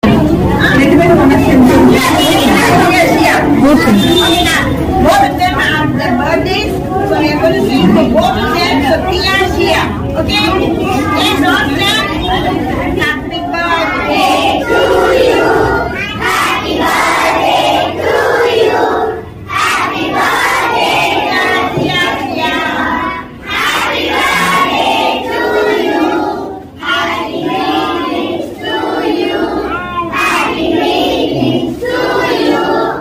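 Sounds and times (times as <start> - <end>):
children singing in unison: 10.7 - 33.0.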